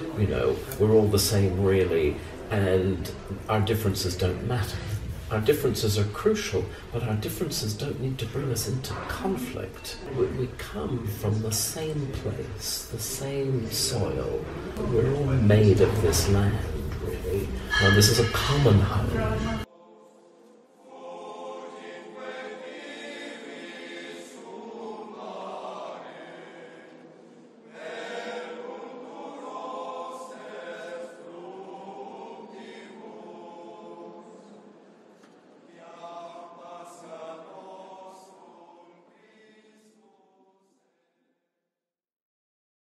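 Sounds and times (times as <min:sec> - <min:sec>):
choir chanting long notes: 0:17.6 - 0:41.3.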